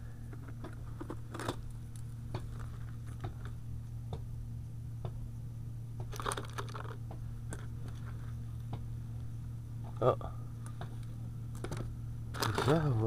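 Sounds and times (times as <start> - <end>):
steady low hum: 0.0 - 13.0
plastic bag rustling in metal bucket: 6.1 - 7.0, 11.7 - 13.0.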